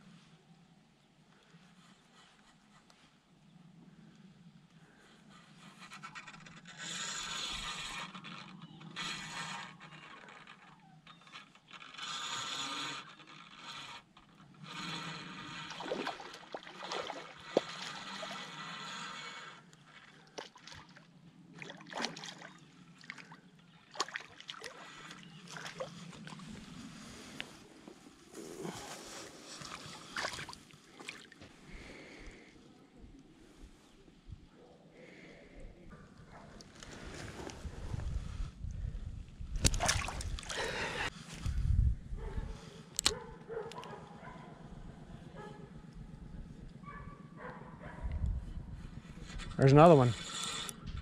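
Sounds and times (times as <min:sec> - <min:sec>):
spinning reel cranking: 0:14.6 - 0:15.7, 0:50.1 - 0:50.8
water splashing: 0:15.7 - 0:18.4, 0:21.6 - 0:26.4, 0:30.1 - 0:31.4, 0:39.6 - 0:41.1.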